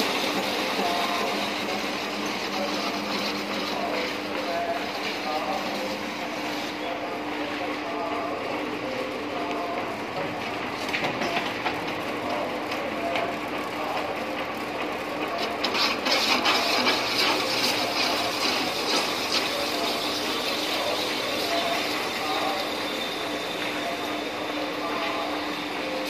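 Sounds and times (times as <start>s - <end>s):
hiss and crackle of metal cutting: 0.0s - 6.8s, 15.3s - 24.3s
lathe machine hum: 0.0s - 26.0s.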